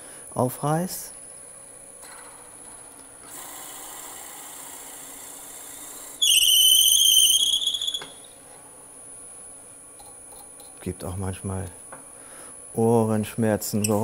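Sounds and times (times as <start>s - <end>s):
drill bit squealing: 6.2s - 8.3s.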